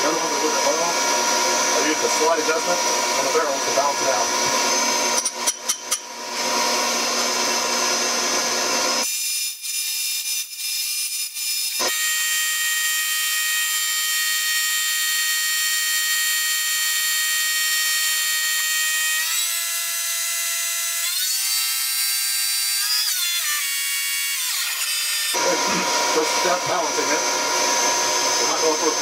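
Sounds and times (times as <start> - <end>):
high machine whine: 0.0 - 9.0, 25.4 - 29.0.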